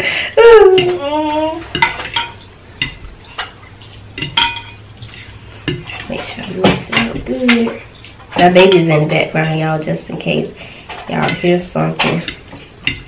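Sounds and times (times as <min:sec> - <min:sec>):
fork clinking on glass dish: 0:04.2 - 0:06.2.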